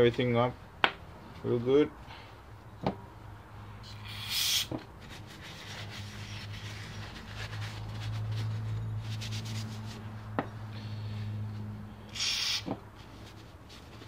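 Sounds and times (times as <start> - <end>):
paper towel rubbing: 5.0 - 10.2.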